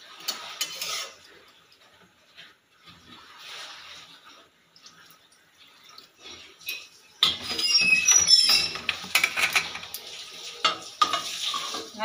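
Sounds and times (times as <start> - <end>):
water poured from a plate: 0.0 - 12.0.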